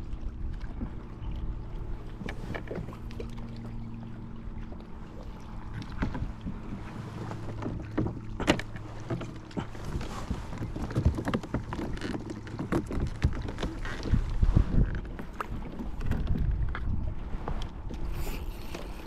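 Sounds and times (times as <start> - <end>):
steady low hum: 0.0 - 19.0
water lapping against hull: 0.0 - 19.0
gear knocking on kayak: 5.6 - 17.6.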